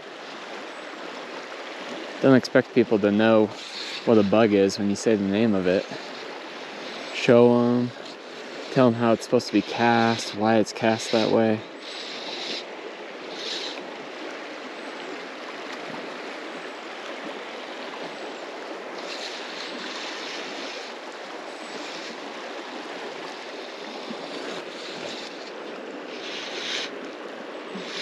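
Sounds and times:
river water rushing: 0.0 - 28.0
water hissing swells: 2.7 - 13.8, 18.9 - 27.0, 27.6 - 28.0.

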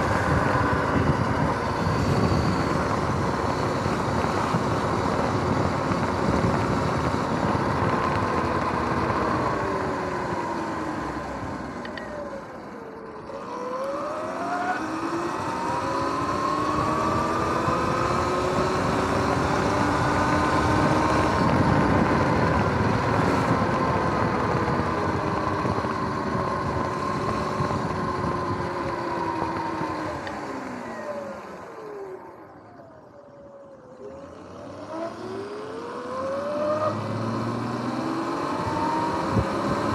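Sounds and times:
wind on microphone: 0.0 - 11.6, 14.8 - 30.6, 36.9 - 39.9
electric motor whining: 0.0 - 39.9.

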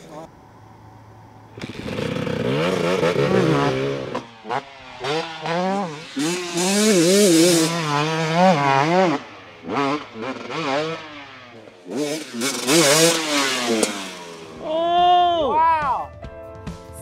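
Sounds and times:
motocross bike engine revving: 1.4 - 14.9.

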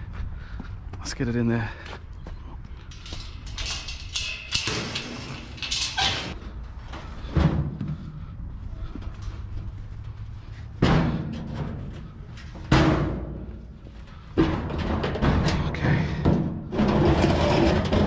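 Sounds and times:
hard thuds and bangs: 7.2 - 8.2, 10.7 - 18.0.

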